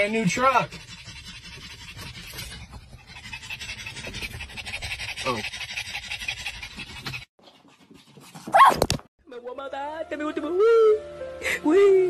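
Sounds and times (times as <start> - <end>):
dog panting: 0.0 - 8.5.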